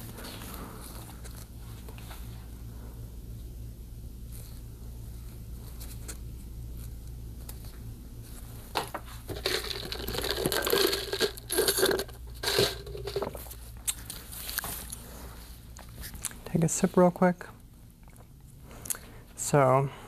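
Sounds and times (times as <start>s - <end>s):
steady low hum: 0.0s - 20.0s
crinkling and tearing: 9.2s - 15.0s.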